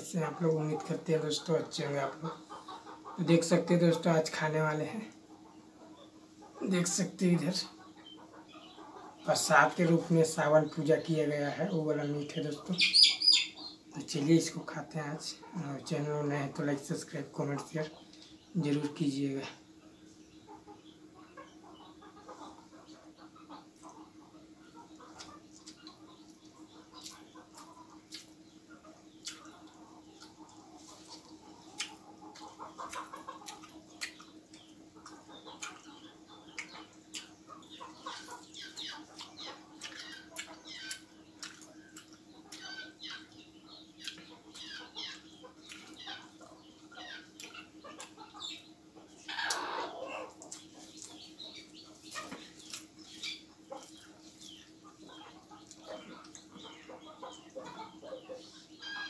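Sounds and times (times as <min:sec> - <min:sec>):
steady low hum: 0:00.0 - 0:59.0
wet chewing and lip-smacking: 0:25.0 - 0:28.4, 0:29.2 - 0:46.7, 0:50.3 - 0:54.6.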